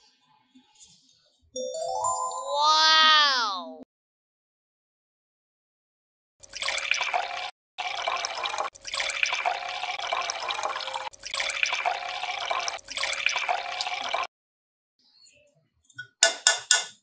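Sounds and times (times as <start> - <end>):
water pouring into metal tin: 6.4 - 14.3.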